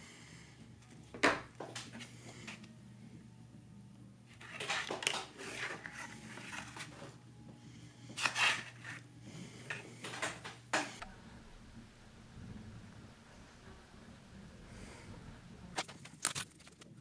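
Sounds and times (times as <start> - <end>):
paper rustling and crinkling: 4.3 - 7.2, 8.2 - 9.0, 15.8 - 17.0.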